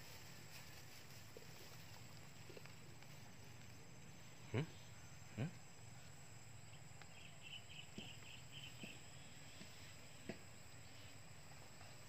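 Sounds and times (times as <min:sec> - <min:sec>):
grass brushing: 0:00.0 - 0:04.0
insect chirping: 0:00.0 - 0:12.0.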